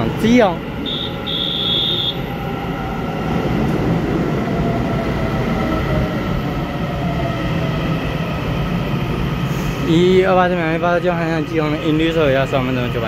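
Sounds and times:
wheels rumbling on rail: 0.0 - 13.0.

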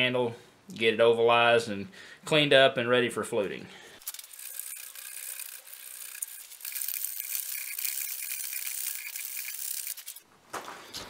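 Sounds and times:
metal broach rasping in wood: 4.1 - 10.2.

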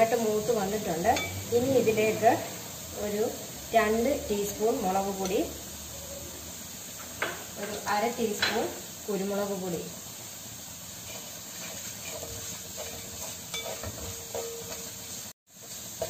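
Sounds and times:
masala sizzling in metal pan: 0.0 - 16.0
wooden spatula scraping pan: 11.0 - 16.0.

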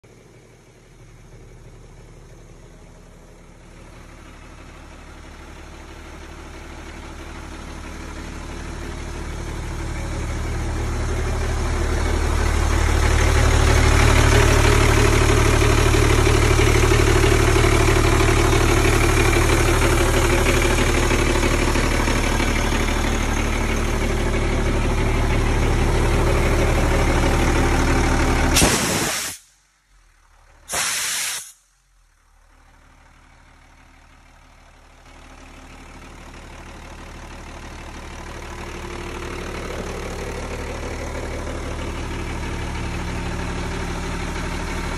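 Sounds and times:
diesel engine idling: 0.0 - 30.8, 31.4 - 44.9
air hissing out: 28.6 - 29.6, 30.7 - 31.7.

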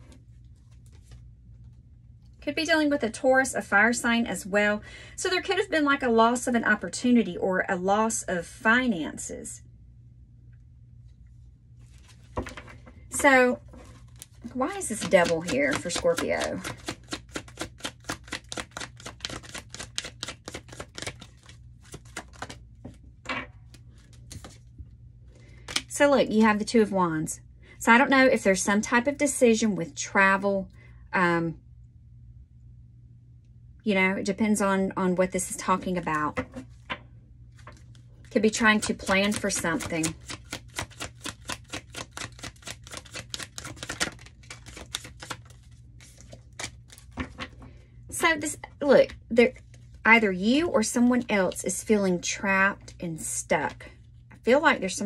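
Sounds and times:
cards being shuffled: 0.0 - 1.8, 11.8 - 23.1, 23.7 - 24.7, 25.4 - 25.9, 37.5 - 48.4.

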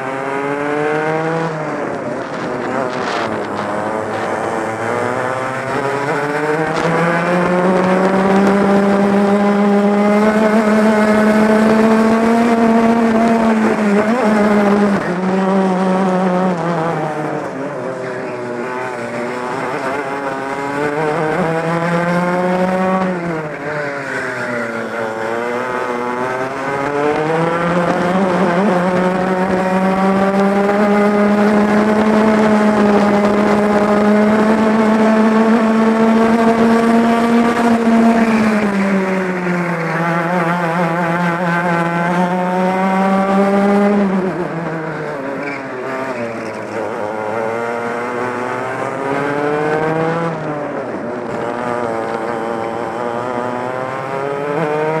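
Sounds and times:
kart engine at racing speed: 0.0 - 55.0.

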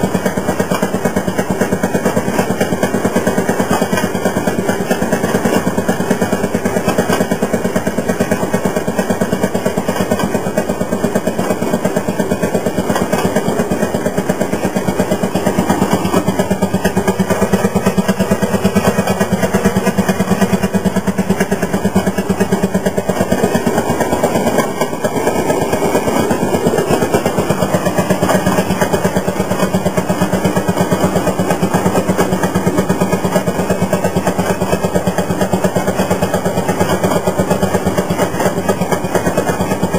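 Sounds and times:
two-stroke engine putt-putt: 0.0 - 39.9.

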